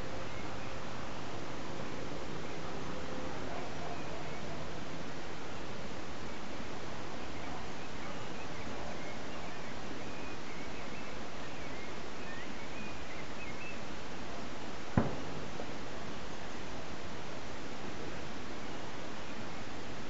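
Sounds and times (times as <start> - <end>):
faint bird chirps: 0.0 - 1.3, 3.4 - 5.0, 6.1 - 14.0
steady background hiss: 0.0 - 20.0
sharp knock: 15.0 - 15.5.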